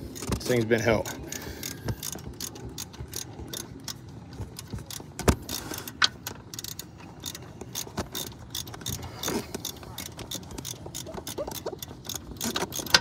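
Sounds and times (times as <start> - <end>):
sharp metal clicks: 0.1 - 13.0
ratchet wrench clicking: 1.0 - 4.0, 4.6 - 13.0.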